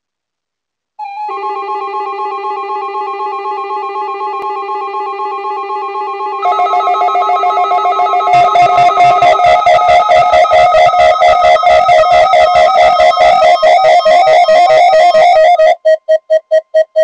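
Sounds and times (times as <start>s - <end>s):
fast repeating arpeggio: 3.0s - 15.8s
drum beat: 8.4s - 12.1s.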